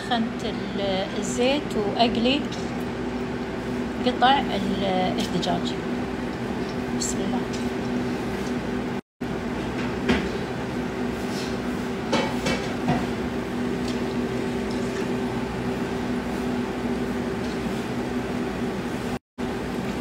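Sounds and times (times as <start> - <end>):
constant low hum: 0.0 - 20.0
chicken deep-frying in oil: 7.7 - 20.0.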